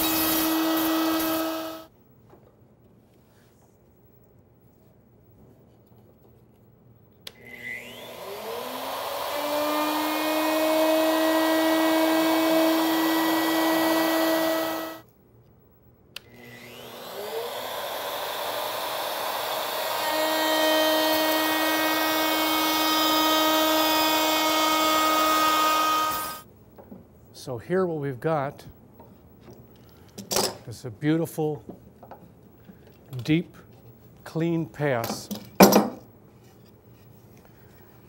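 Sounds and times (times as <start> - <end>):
router motor whining: 0.0 - 1.9, 7.3 - 15.0, 16.2 - 26.4.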